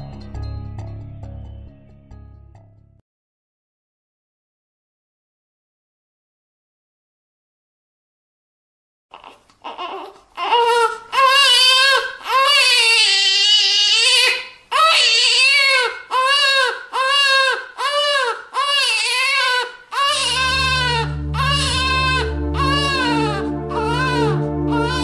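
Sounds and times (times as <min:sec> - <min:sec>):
music with low notes: 0:00.0 - 0:03.0, 0:20.2 - 0:25.0
baby crying: 0:09.1 - 0:25.0.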